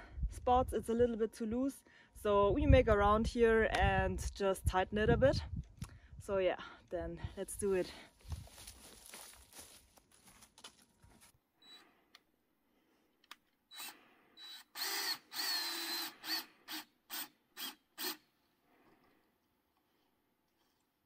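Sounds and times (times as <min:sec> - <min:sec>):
cordless drill whining in spurts: 0:11.6 - 0:11.8, 0:13.7 - 0:18.3.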